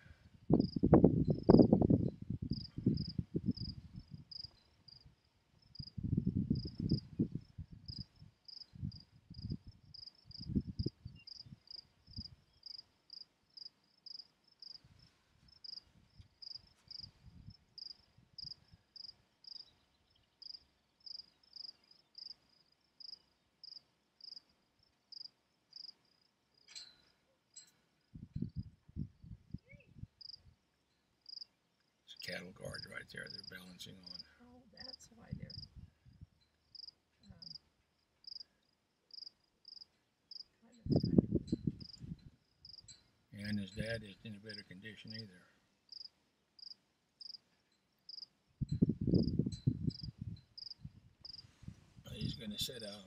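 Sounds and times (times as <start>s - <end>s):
cricket chirping: 0.0s - 45.3s, 45.9s - 53.0s.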